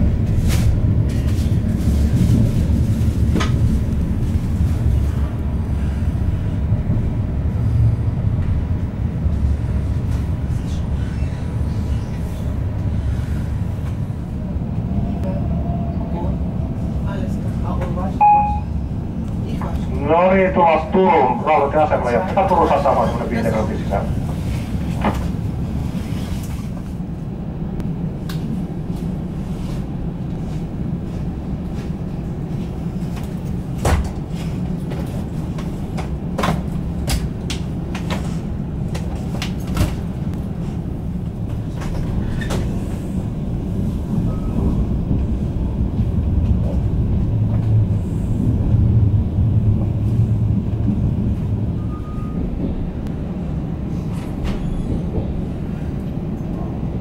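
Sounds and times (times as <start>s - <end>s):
train rumbling: 0.0s - 57.0s.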